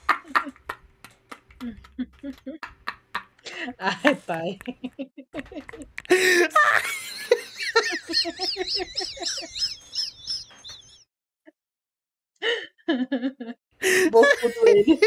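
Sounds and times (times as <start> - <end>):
man laughing in high cackles: 5.4 - 11.0.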